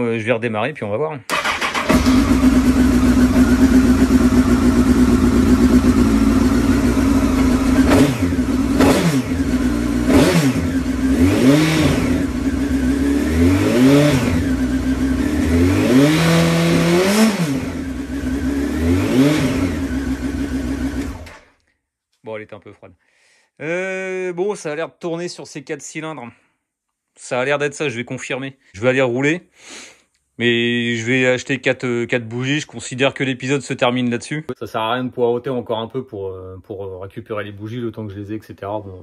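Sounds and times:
motorcycle engine idling and revving: 1.3s - 21.5s.

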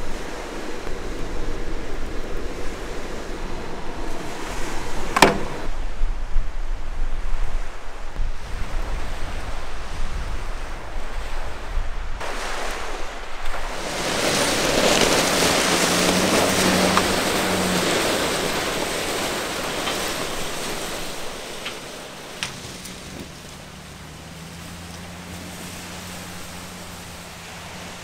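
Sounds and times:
truck engine hum: 0.0s - 6.4s, 12.8s - 28.0s
wind rumbling on microphone: 0.0s - 28.0s
tyres crunching over gravel: 13.4s - 28.0s.

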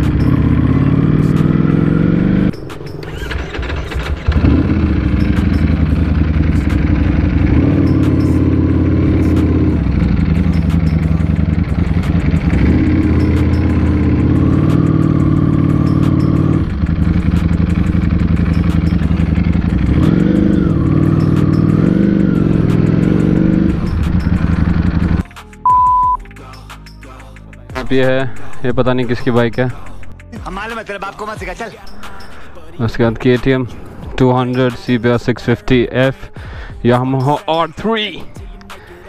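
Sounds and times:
motorcycle engine revving: 0.0s - 25.2s.

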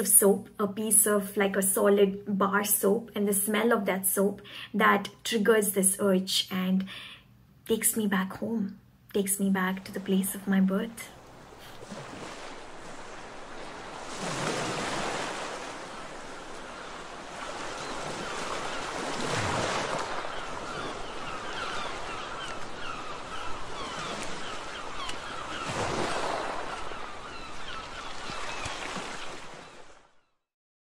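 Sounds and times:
ocean waves washing in: 9.7s - 30.0s.

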